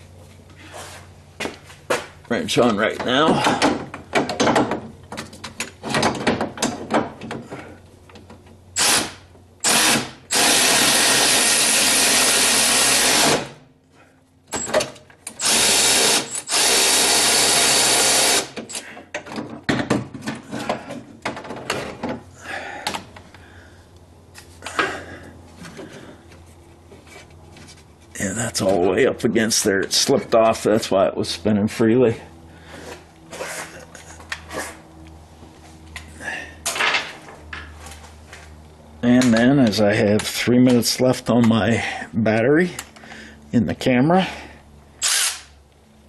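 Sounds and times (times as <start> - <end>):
electric ratchet wrench running: 8.8 - 13.6, 15.3 - 18.8, 45.0 - 45.6.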